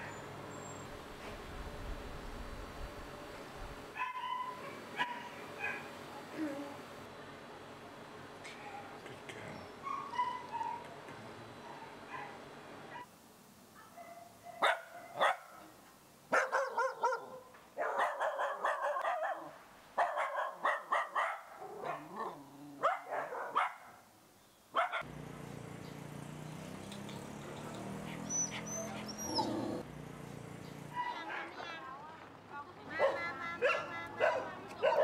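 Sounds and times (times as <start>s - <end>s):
dog barking: 4.0s - 5.9s, 9.8s - 10.9s, 11.6s - 13.1s, 13.8s - 15.7s, 16.3s - 24.0s, 24.8s - 25.1s, 31.0s - 31.7s, 33.0s - 35.0s.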